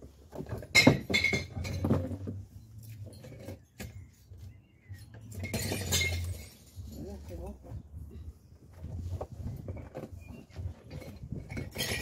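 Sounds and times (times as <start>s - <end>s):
glass bottles clinking: 0.4s - 4.0s, 4.9s - 7.2s, 10.2s - 12.0s.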